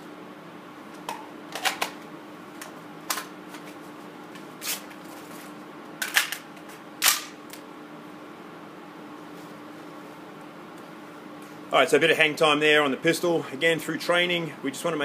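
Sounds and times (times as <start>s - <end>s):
ventilation hum: 0.0s - 15.0s.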